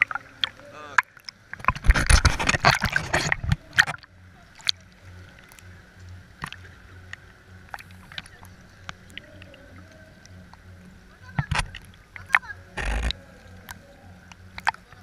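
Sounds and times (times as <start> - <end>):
water splashing over camera: 0.0 - 5.6, 11.3 - 15.0
small ticks: 11.4 - 15.0.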